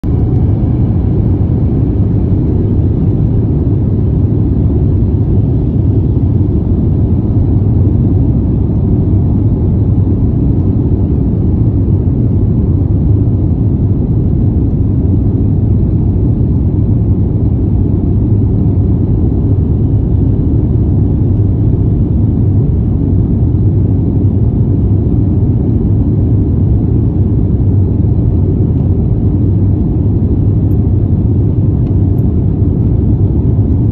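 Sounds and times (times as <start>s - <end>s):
rushing air: 0.0s - 14.0s
jet engines rumbling: 0.0s - 33.9s.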